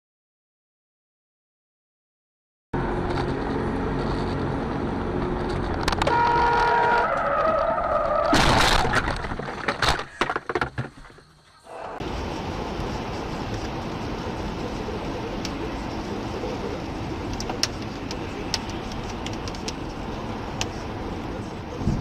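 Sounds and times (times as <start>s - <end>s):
car road noise: 2.8s - 22.0s
car crash: 5.8s - 12.0s
tyres squealing under braking: 6.1s - 8.4s
knocks and rattles: 8.2s - 11.3s.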